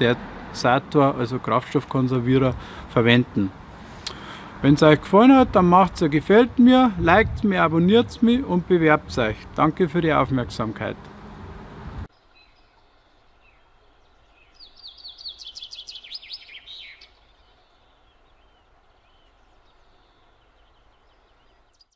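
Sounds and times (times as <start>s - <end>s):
outdoor noise: 0.0s - 21.9s
faint hiss: 2.4s - 4.7s
songbird chirping: 7.5s - 21.9s.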